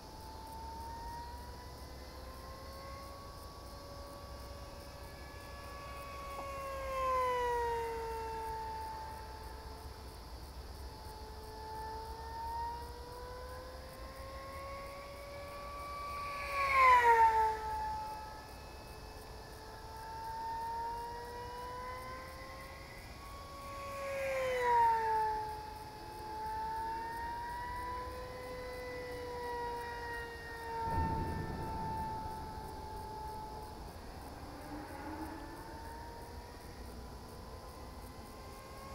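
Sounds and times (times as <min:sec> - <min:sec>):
model plane motor whining: 0:00.0 - 0:10.2, 0:10.8 - 0:33.7.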